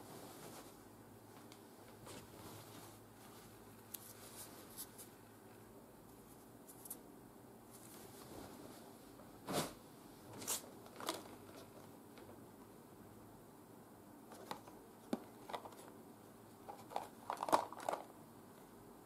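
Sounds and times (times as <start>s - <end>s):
fabric being folded: 7.8s - 8.8s.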